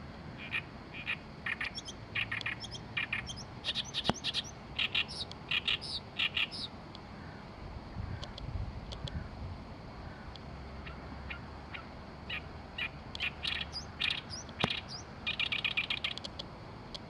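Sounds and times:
reed warbler singing: 0.4 - 7.4, 10.0 - 16.3
sharp click: 4.0 - 4.4, 8.2 - 9.2, 14.4 - 14.9, 15.9 - 17.0.

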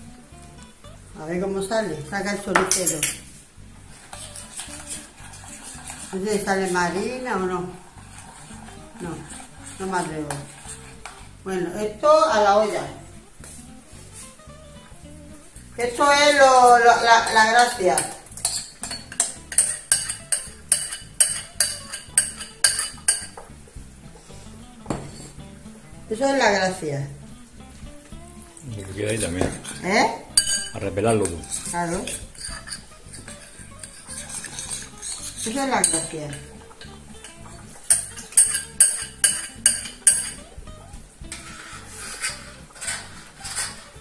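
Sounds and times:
spoon scraping plastic bowl: 3.9 - 11.2, 17.2 - 23.5, 28.9 - 40.4, 41.3 - 44.0
spatula knocking against cookware: 17.9 - 23.5, 37.2 - 40.4.

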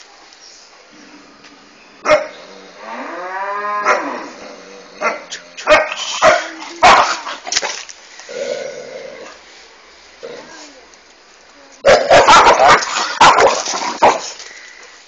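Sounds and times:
dog barking: 2.0 - 2.3, 5.0 - 7.2, 11.9 - 14.2.

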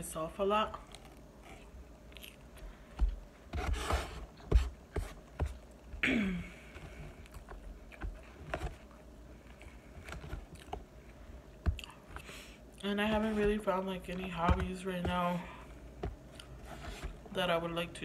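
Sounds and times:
chewing: 0.7 - 3.0, 6.7 - 10.8, 11.5 - 12.8.

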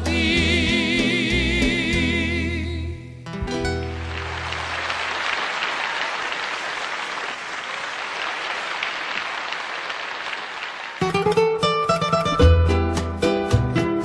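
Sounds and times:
plucked-string music: 3.2 - 4.7, 11.1 - 14.0
crowd applauding: 3.8 - 11.4.

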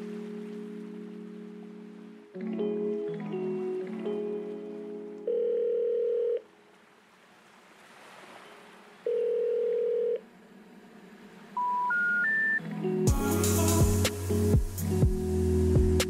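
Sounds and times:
steady telephone tone: 5.2 - 6.5, 9.1 - 10.2, 11.6 - 12.6
rising telephone beeps: 9.1 - 10.2, 11.6 - 12.6.

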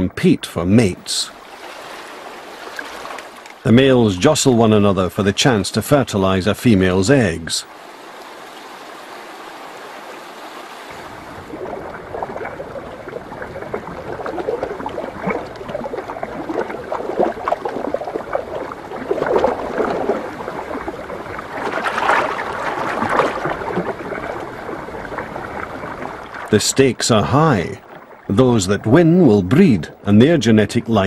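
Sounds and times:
shallow river water running: 0.0 - 31.0
fish splashing in water: 1.4 - 3.6, 7.7 - 26.5.

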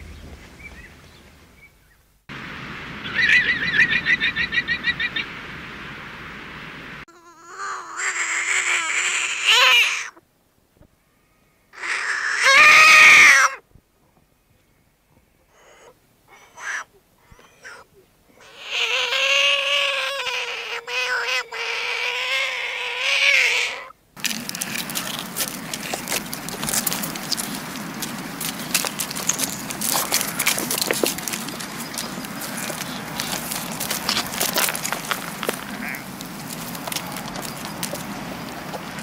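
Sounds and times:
frog calling: 3.0 - 5.4, 7.1 - 10.2, 11.7 - 13.6, 15.5 - 39.0.

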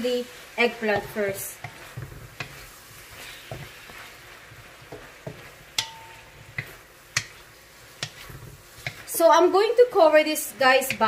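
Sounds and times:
eggplant sizzling in a pan: 0.0 - 11.0
utensil knocking against a pan: 4.9 - 7.4, 8.0 - 9.0.

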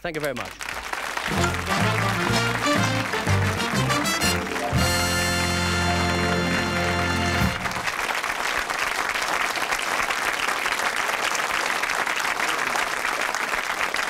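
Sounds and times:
studio audience applauding: 0.0 - 14.0
held musical chord: 1.3 - 7.9.

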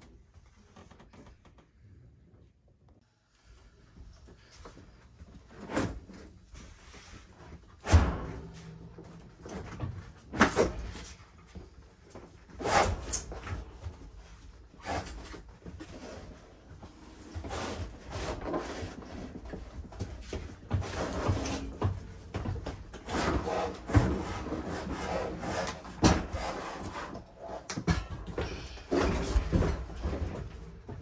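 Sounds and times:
refrigerator knocks and bumps: 7.8 - 11.1.

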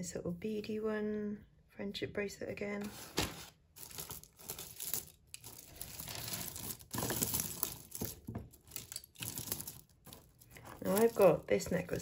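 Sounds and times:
beads and chains clicking: 3.8 - 11.5.

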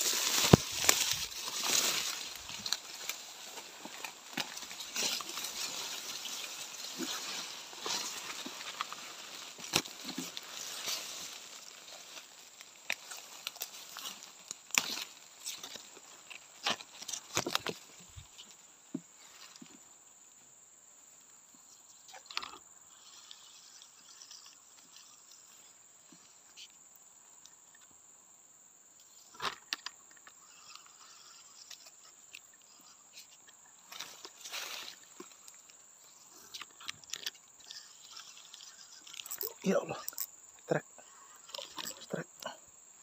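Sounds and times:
vegetation rustling and snapping: 0.0 - 18.6, 33.8 - 35.8
high insect drone: 0.0 - 43.0.

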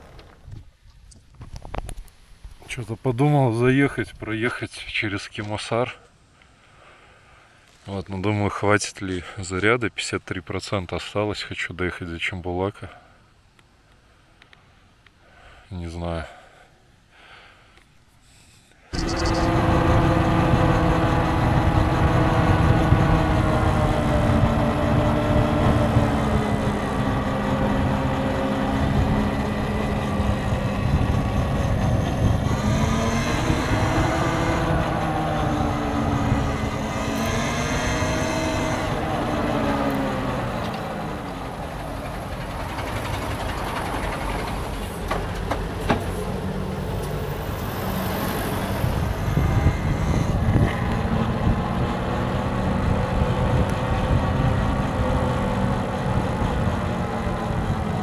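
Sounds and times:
road noise rumble: 18.9 - 58.0
vehicle engine: 18.9 - 58.0.

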